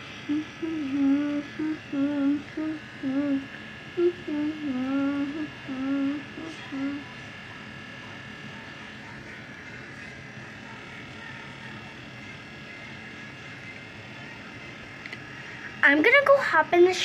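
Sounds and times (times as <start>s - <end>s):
girl humming: 0.0s - 7.1s
faint background hum: 0.0s - 17.0s
thin high whine: 0.0s - 17.0s.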